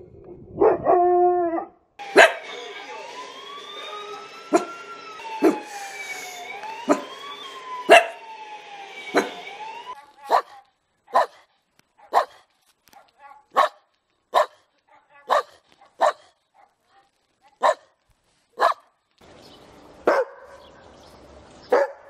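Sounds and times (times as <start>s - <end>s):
siren wailing: 2.0s - 10.2s
dog barking: 2.1s - 2.6s, 4.5s - 4.7s, 6.9s - 7.1s, 7.9s - 8.2s, 9.1s - 9.4s, 10.2s - 18.0s, 18.6s - 19.0s, 20.0s - 20.7s, 21.7s - 22.0s.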